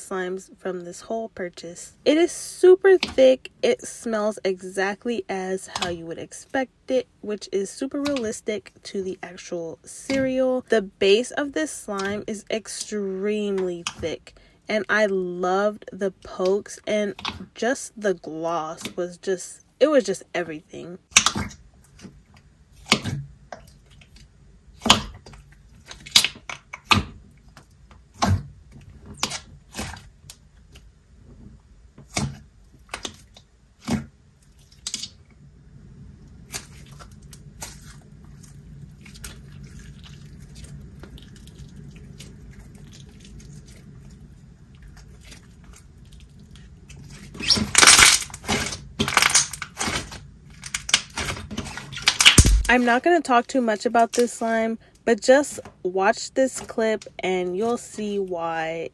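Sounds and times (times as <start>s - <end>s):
slime crackling pops: 52.0s - 52.8s.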